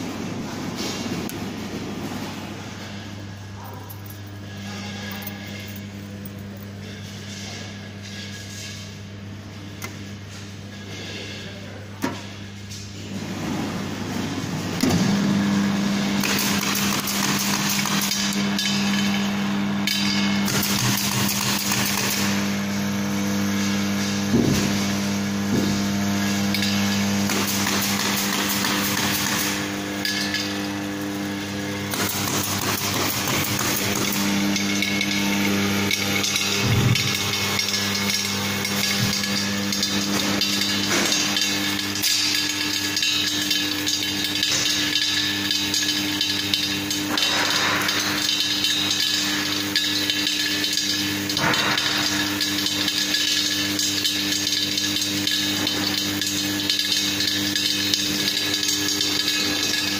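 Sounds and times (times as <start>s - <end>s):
motor and gearbox hum: 0.0s - 59.9s
machine rattling clatter: 16.2s - 22.4s, 26.5s - 30.9s, 31.8s - 59.9s.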